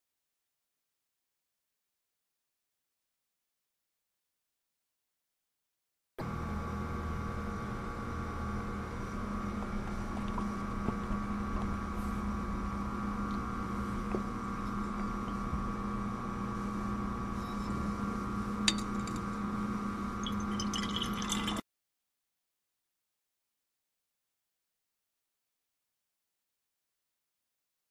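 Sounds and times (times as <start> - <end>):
steady hum: 6.2 - 21.6
glass flasks clinking: 20.2 - 21.6
water pouring into glass flask: 20.2 - 21.6.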